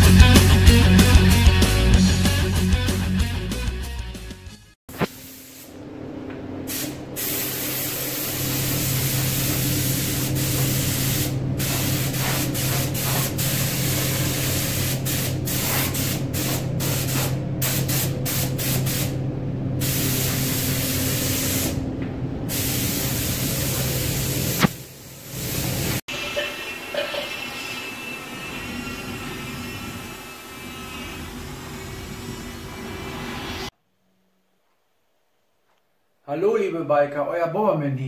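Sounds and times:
paint spray gun hissing: 4.9s - 5.8s, 6.7s - 19.1s, 19.8s - 21.8s, 22.5s - 26.0s.

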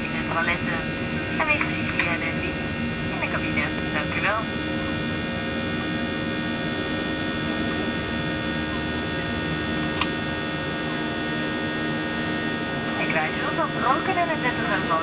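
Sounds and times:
airliner engine and airflow drone: 0.0s - 15.0s
steady whining tones: 0.0s - 15.0s.

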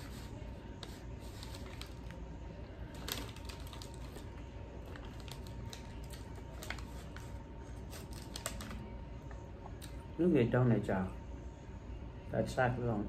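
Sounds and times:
low room hum: 0.0s - 13.0s
paper bag crinkling: 0.1s - 2.2s, 2.9s - 8.9s.

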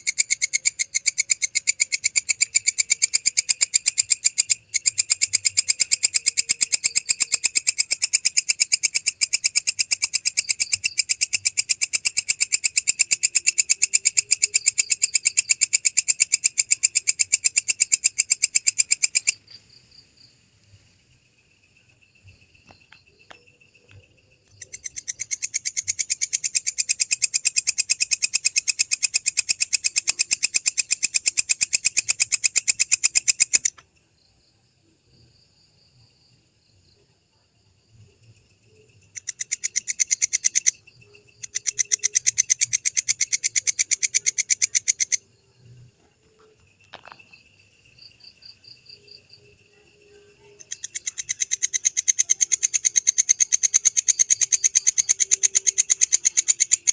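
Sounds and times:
soft insect trill: 0.0s - 56.9s
katydid rasping pulses: 38.9s - 45.7s, 50.3s - 56.9s.

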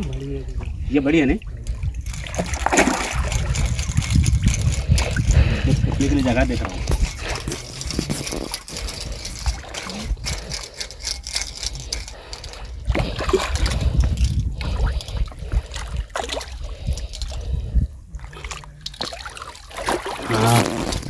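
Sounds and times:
fish splashing in water: 1.9s - 5.3s, 14.6s - 17.4s, 18.2s - 20.6s.

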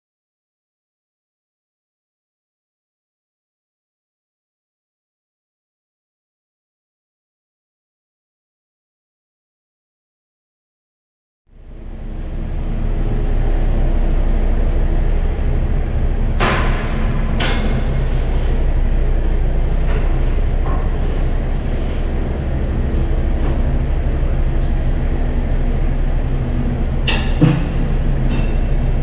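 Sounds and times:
diesel engine rumbling: 11.5s - 29.0s
sharp knocks: 27.1s - 28.9s.

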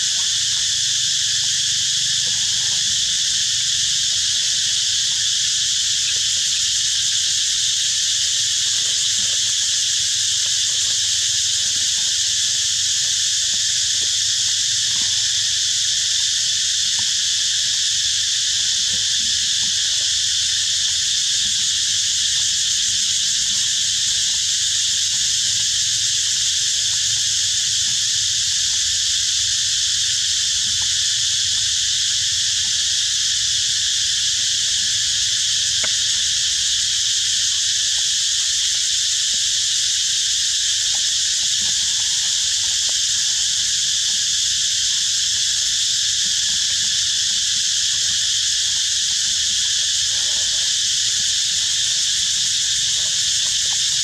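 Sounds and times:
shrill insect chorus: 0.0s - 54.0s
faint ticks: 35.7s - 36.2s.

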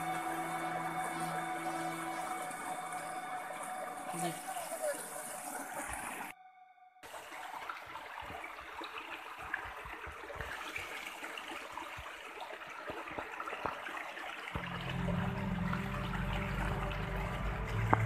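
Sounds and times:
stream trickling over rocks: 0.0s - 6.4s, 7.0s - 18.0s
background music: 0.0s - 6.6s, 14.6s - 18.0s.

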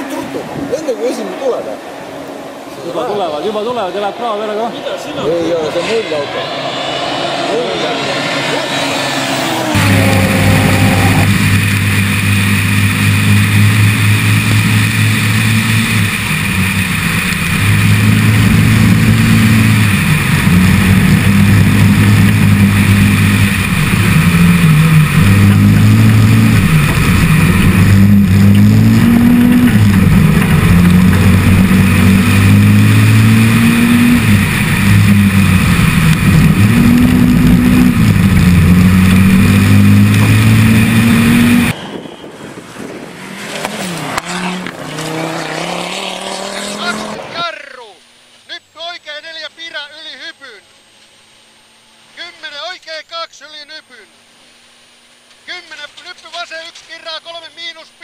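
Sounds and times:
rally car engine accelerating: 3.0s - 47.5s.

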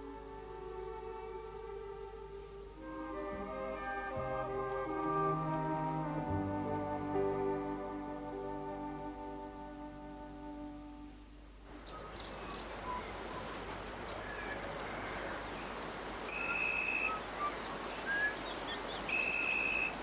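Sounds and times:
outdoor background hiss: 0.0s - 20.0s
birds chirping: 11.7s - 20.0s.

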